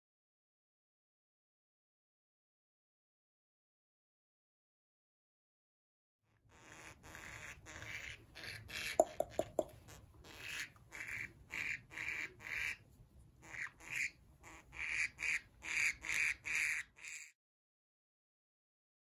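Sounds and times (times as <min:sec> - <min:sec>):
budgerigar squawking: 0:06.5 - 0:12.8, 0:13.4 - 0:17.3.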